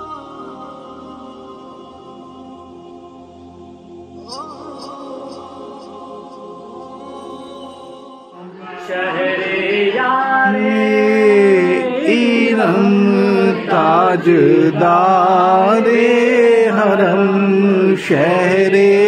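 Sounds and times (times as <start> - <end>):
steady held tone: 0.0 - 16.4
man singing devotional song: 8.4 - 19.0.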